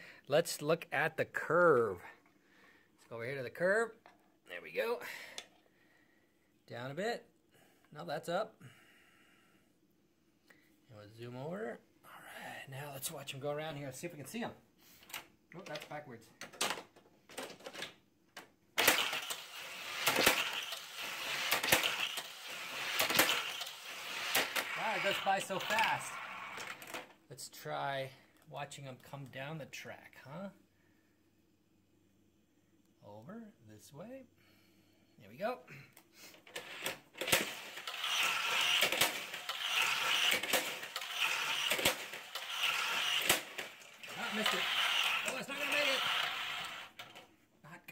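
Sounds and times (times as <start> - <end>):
toy car launcher clack: 18.8 - 27.1, 36.5 - 47.3
toy cars rattling on plastic track: 18.8 - 27.1, 36.5 - 47.3.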